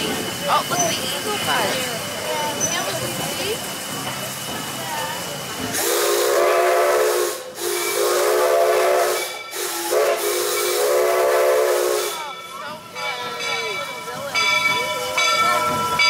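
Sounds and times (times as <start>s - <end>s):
steam hissing: 0.0s - 16.0s
steam locomotive whistle: 5.7s - 12.3s.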